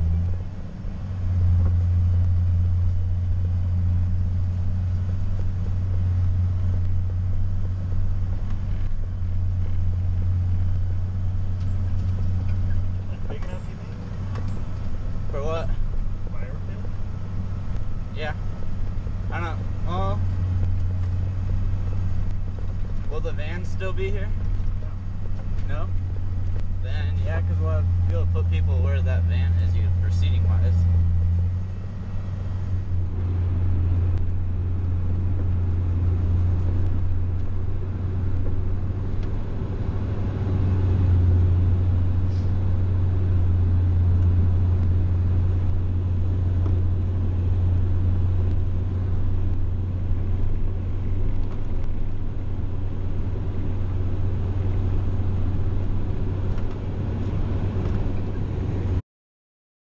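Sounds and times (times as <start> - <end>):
diesel engine drone: 0.0 - 59.0.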